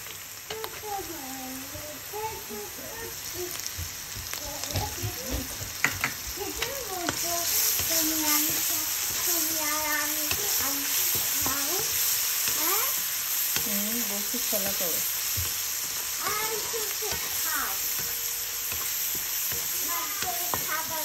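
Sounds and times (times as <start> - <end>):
shrimp sizzling in hot oil: 0.0 - 21.0
spatula tapping pan: 4.6 - 21.0.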